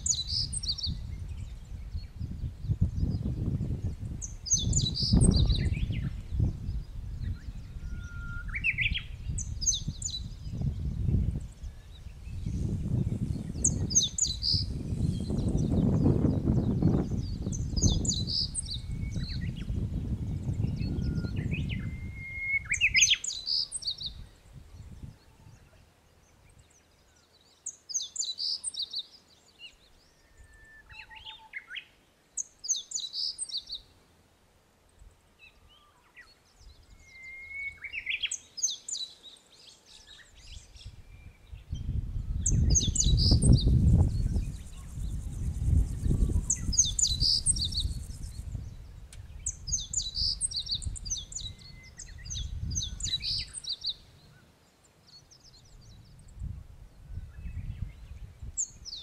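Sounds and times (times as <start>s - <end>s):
wind rumbling on microphone: 0.0s - 27.2s, 40.1s - 54.4s, 55.1s - 59.0s
songbird twittering: 0.0s - 33.9s, 35.0s - 54.5s.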